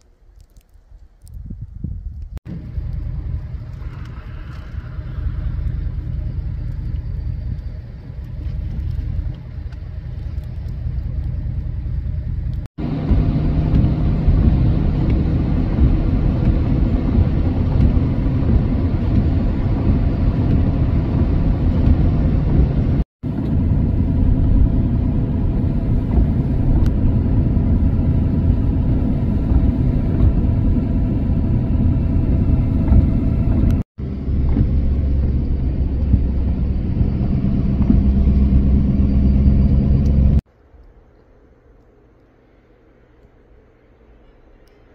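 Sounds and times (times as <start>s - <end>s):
vehicle road and engine rumble: 0.0s - 44.9s.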